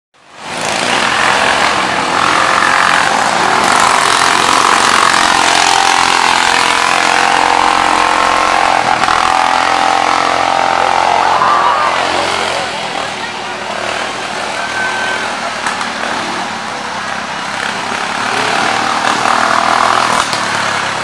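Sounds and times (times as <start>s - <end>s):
racing lawn mower engines: 0.2s - 21.0s.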